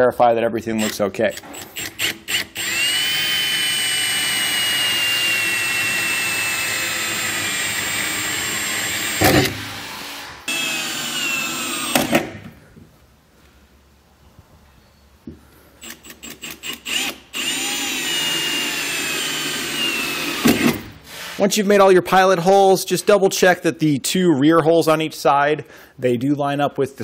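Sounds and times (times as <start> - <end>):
cordless drill whining: 0.8 - 12.3, 15.8 - 21.3.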